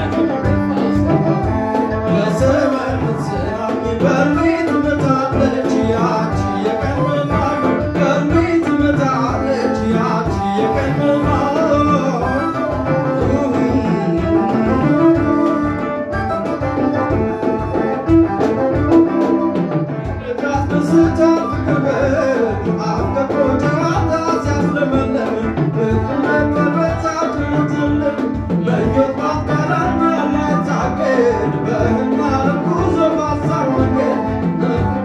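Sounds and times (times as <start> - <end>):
string instruments playing: 0.0 - 24.3
hand drums beating: 0.0 - 35.0
man singing into microphone: 0.0 - 35.0.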